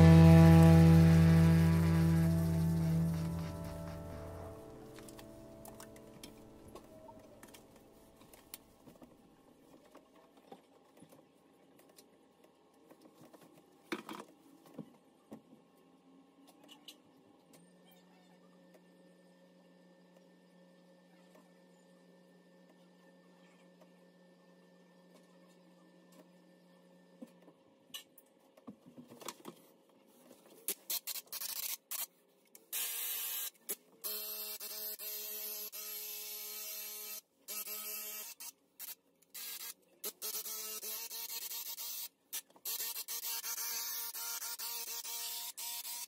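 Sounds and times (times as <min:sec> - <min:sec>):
paint sprayer hissing: 0:00.0 - 0:04.6
brief louder noise: 0:00.0 - 0:06.5.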